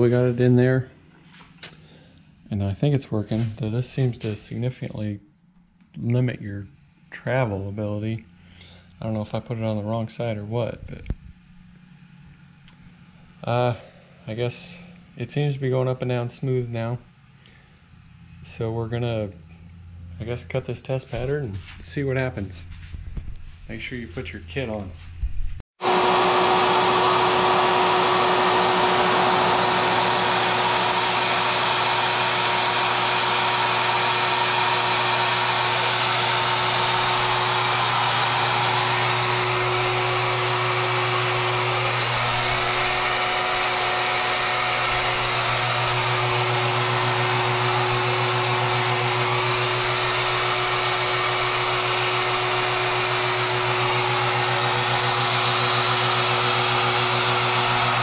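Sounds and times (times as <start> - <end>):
router motor whine: 25.8 - 58.0.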